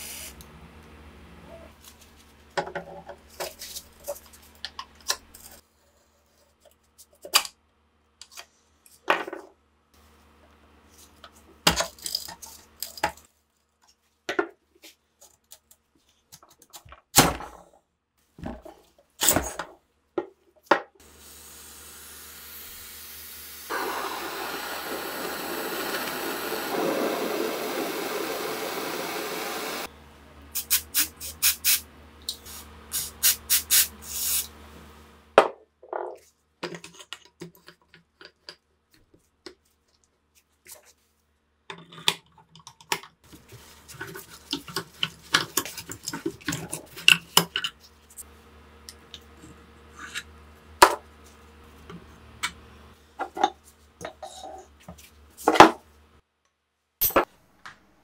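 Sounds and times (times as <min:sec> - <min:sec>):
aerosol can spraying: 0:00.0 - 0:00.4, 0:21.2 - 0:29.9, 0:30.6 - 0:31.8, 0:32.4 - 0:34.5.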